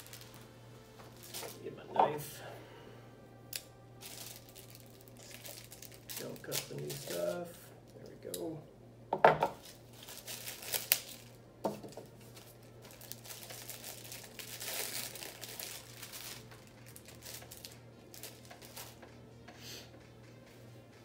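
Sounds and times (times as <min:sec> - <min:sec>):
plastic packaging tearing: 0:00.0 - 0:00.4, 0:03.5 - 0:07.4, 0:09.6 - 0:11.4, 0:12.1 - 0:19.0
plastic packaging crinkling: 0:00.0 - 0:01.7, 0:03.5 - 0:07.5, 0:09.6 - 0:19.0.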